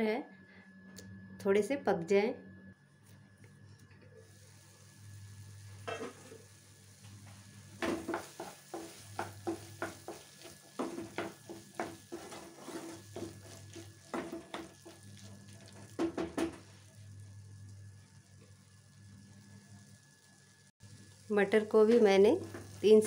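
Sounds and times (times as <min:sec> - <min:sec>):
spatula scraping frying pan: 0:07.8 - 0:15.0.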